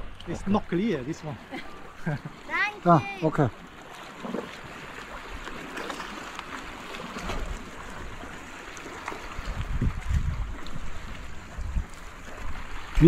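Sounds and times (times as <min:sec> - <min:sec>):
small waves lapping against rock: 0:00.0 - 0:13.0
wind rumble on microphone: 0:09.2 - 0:13.0.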